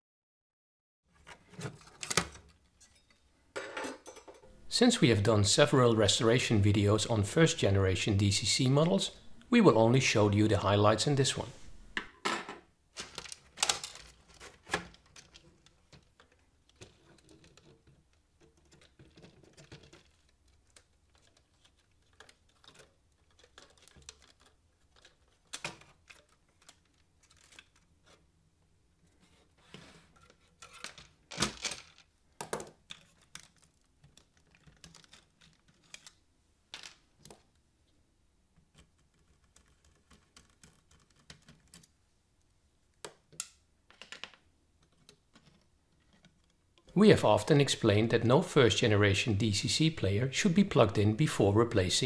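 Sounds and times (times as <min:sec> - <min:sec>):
plastic and metal parts clicking: 0:13.0 - 0:28.2, 0:30.2 - 0:36.2, 0:38.6 - 0:42.0, 0:43.0 - 0:46.9.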